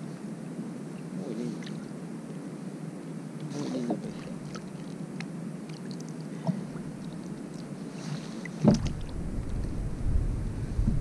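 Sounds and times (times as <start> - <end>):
water lapping around a kayak: 0.9 - 2.3, 3.4 - 11.0
small splashes: 4.0 - 5.0, 8.5 - 9.8.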